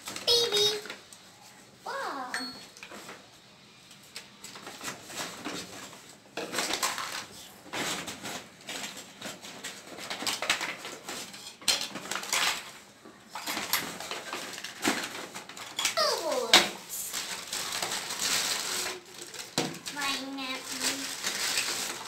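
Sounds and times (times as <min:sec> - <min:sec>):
plastic toys clattering on table: 0:04.4 - 0:22.0.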